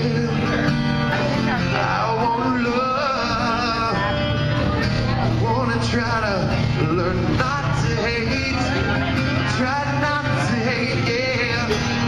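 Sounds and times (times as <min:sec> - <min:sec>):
acoustic guitar playing: 0:00.0 - 0:12.0
man singing: 0:00.0 - 0:12.0.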